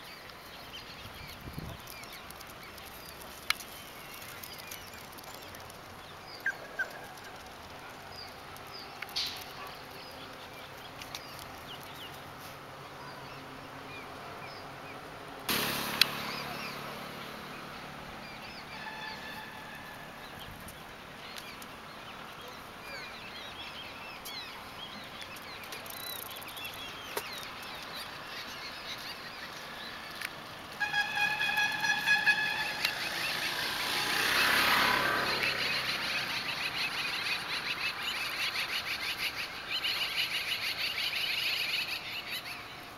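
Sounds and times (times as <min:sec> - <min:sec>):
small birds chirping: 0:00.0 - 0:18.8, 0:20.2 - 0:42.9
vehicle driving past: 0:15.5 - 0:20.4, 0:30.8 - 0:38.3.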